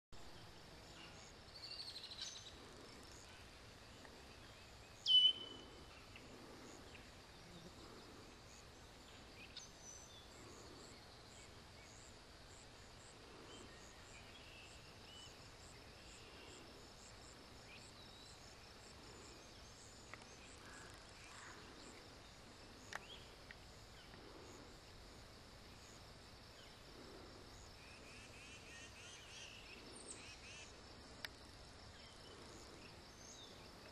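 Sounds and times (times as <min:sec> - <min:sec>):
birdsong: 0:00.2 - 0:12.1, 0:12.9 - 0:24.7
insects: 0:00.2 - 0:33.9
steady background hiss: 0:00.2 - 0:33.9.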